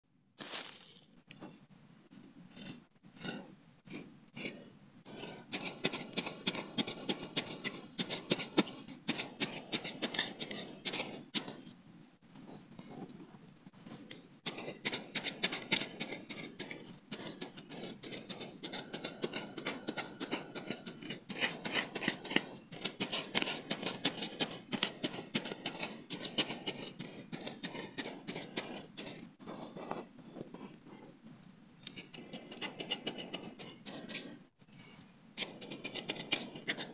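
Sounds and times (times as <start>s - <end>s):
machete scraping into dry earth: 0.4s - 1.2s.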